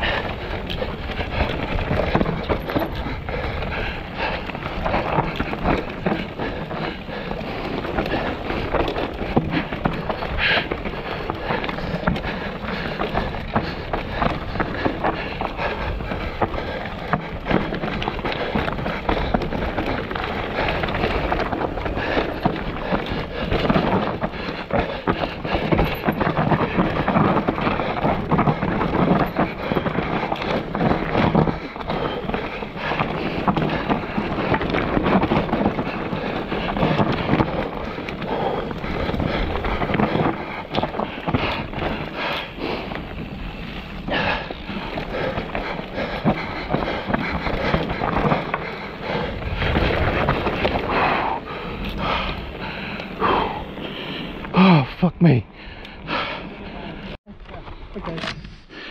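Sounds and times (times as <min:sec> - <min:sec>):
bike knocking and rattling on rocks: 0:00.0 - 0:54.6
bike tyre and drivetrain noise: 0:00.0 - 0:58.9.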